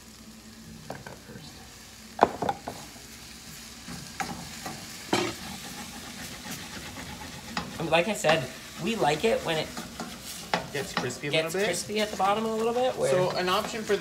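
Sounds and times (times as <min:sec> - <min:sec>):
grain sizzling in a pan: 0:00.0 - 0:14.0
sharp knocks on a pan: 0:02.2 - 0:02.8
wooden spoon stirring in a pan: 0:03.5 - 0:14.0.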